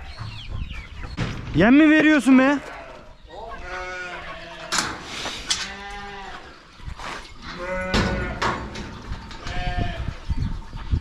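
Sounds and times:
sheep bleating: 2.6s - 4.8s, 5.6s - 6.5s, 7.5s - 8.4s.

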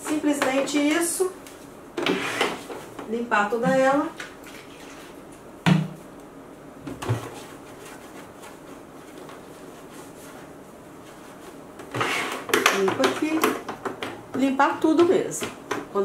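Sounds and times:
cloth rubbing: 7.3s - 12.3s.

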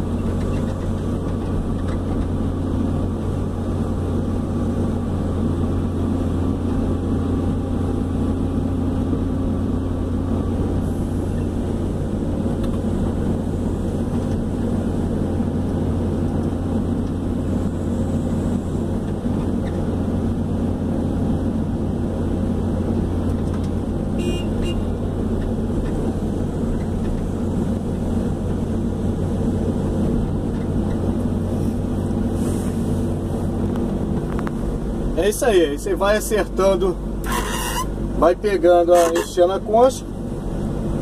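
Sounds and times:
excavator diesel engine humming: 0.0s - 41.0s.

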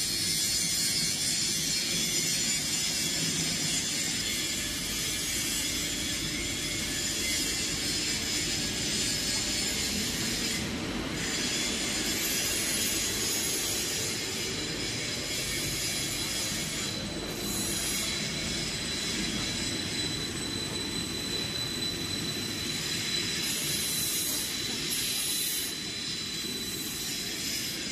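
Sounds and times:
thin high-pitched whine: 0.1s - 27.9s
machine drone: 1.2s - 27.9s.

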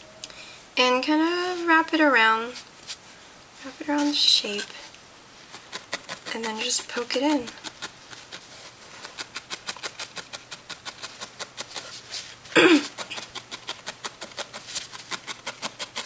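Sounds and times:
felting needle poking foam: 5.5s - 11.9s, 12.8s - 16.0s.

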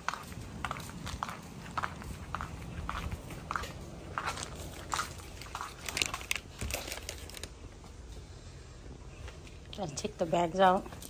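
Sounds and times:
footsteps crunching: 0.0s - 8.0s
quick irregular crunches and clicks: 4.3s - 7.6s.

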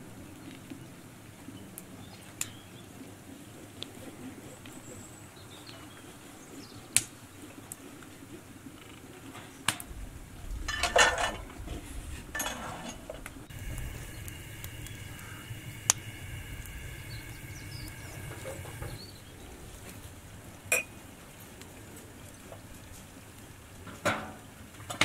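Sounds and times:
dishes rustling: 10.7s - 19.0s
steady high hum: 13.3s - 19.4s.

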